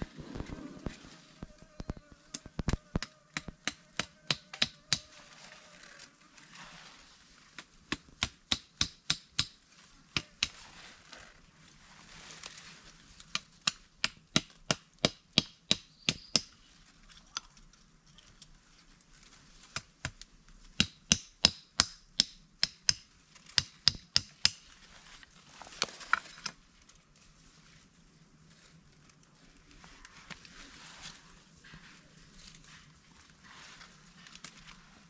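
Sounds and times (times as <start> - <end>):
knife chopping into wood: 3.0 - 5.1
short rustle: 10.6 - 13.1, 24.8 - 35.0.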